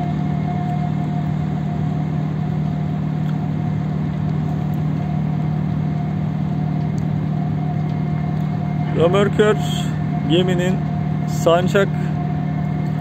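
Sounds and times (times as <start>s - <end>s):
diesel machinery humming: 0.0s - 13.0s
thin steady whine: 0.0s - 13.0s.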